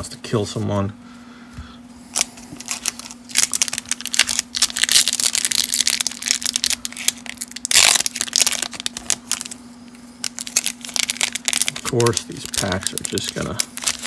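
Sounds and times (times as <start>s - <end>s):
foil wrapper crinkling: 2.1s - 9.6s, 10.2s - 14.0s
foil wrapper ripping: 2.1s - 9.6s, 10.2s - 14.0s.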